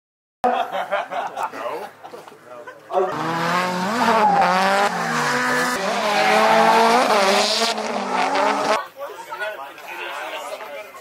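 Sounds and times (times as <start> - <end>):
car engine revving hard: 3.1 - 8.8
tyres squealing: 3.1 - 8.8.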